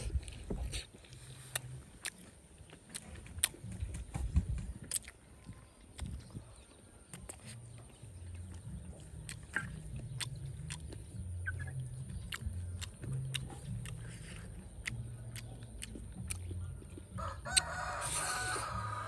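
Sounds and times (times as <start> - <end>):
rooster crowing: 17.2 - 19.0.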